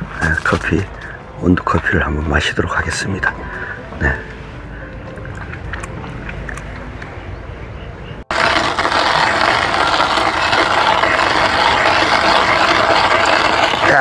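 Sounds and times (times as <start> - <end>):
coffee grinder grinding beans: 8.3 - 14.0.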